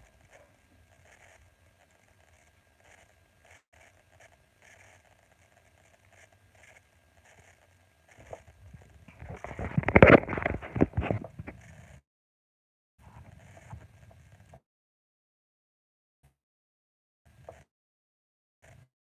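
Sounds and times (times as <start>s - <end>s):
faint crackle: 0.0s - 12.0s, 13.0s - 14.6s
rustling and scratching clicks: 0.0s - 12.0s, 13.0s - 14.6s.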